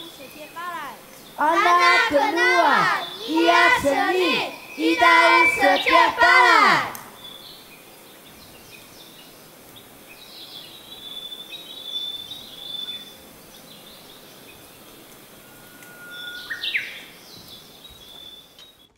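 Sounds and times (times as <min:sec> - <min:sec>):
birds chirping and whistling: 0:02.2 - 0:06.2, 0:07.1 - 0:08.1, 0:10.4 - 0:18.8.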